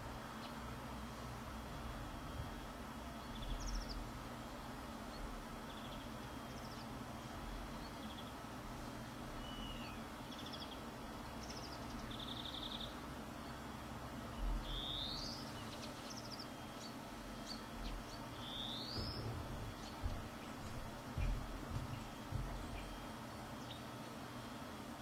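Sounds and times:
faint steady hum: 0.0 - 25.0
songbirds calling: 3.1 - 24.6
soft low bump: 18.9 - 22.9.

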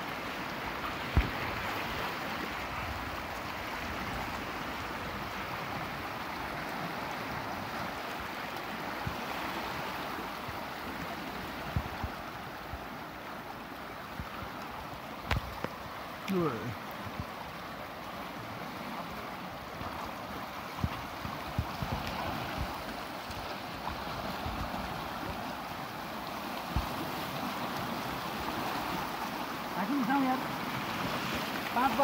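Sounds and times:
river rushing: 0.0 - 32.0.

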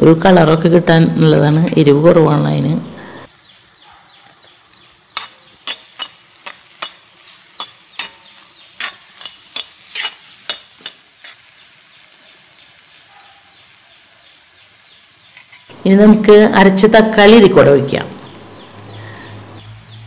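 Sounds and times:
faint sizzle of frying: 0.0 - 20.0
spatula scraping and knocking pan: 5.1 - 11.5.

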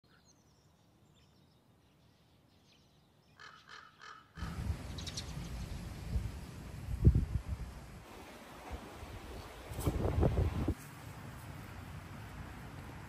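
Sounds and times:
bird harsh calls: 2.3 - 5.7
wind buffeting microphone: 4.4 - 10.8.

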